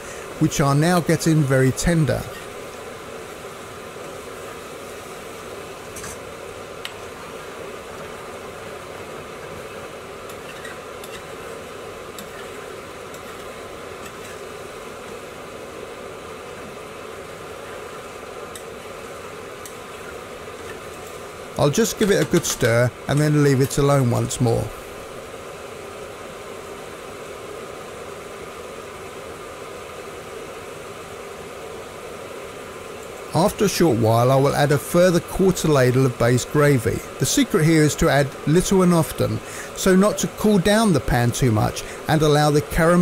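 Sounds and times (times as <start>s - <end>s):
gravy sizzling in a pan: 0.0s - 25.8s
steady rushing hiss: 0.0s - 43.0s.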